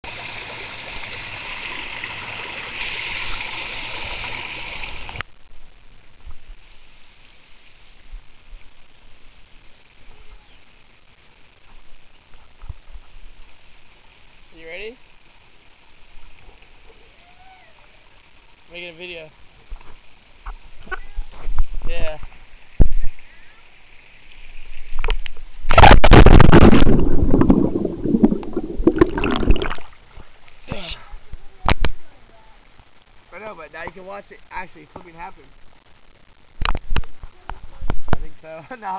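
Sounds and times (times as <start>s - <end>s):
faint outdoor background: 0.0s - 38.9s
underwater bubbling and churning: 24.5s - 30.1s
water splashing into pool: 25.6s - 30.0s.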